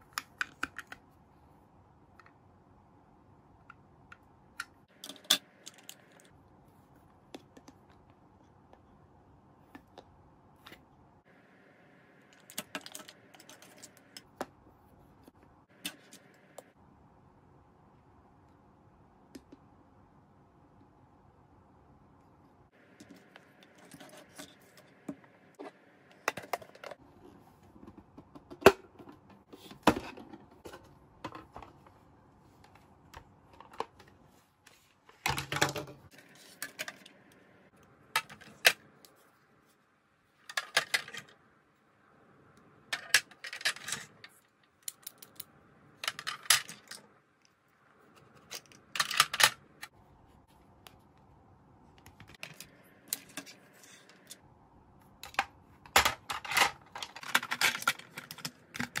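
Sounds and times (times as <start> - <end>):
plastic toy pieces clattering: 55.3 - 59.0.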